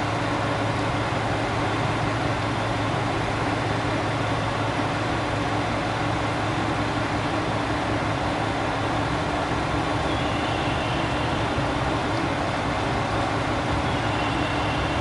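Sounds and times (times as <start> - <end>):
diesel railcar engine humming: 0.0 - 15.0.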